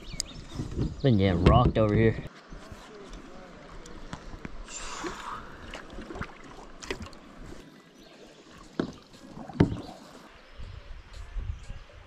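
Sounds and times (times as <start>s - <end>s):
water lapping around kayak: 2.0s - 11.3s
light knocks against hull: 8.7s - 9.9s.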